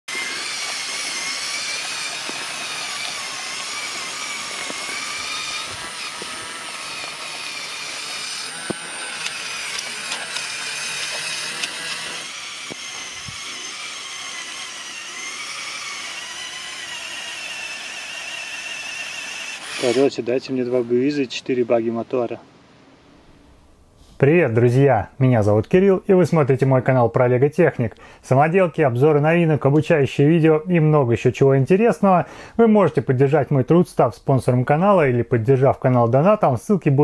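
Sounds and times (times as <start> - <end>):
small electric motors whining: 0.1 - 21.7
sharp clicks: 0.6 - 13.5.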